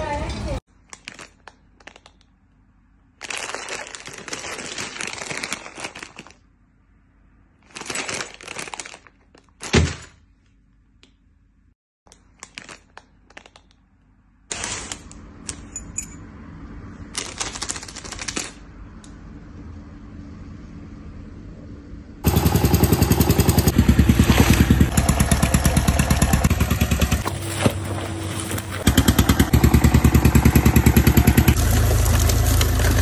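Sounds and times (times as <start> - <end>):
plastic packaging crinkling: 0.8 - 2.3, 3.1 - 6.6, 7.6 - 10.1, 12.1 - 13.8, 14.5 - 15.3, 17.0 - 18.7, 31.6 - 33.0.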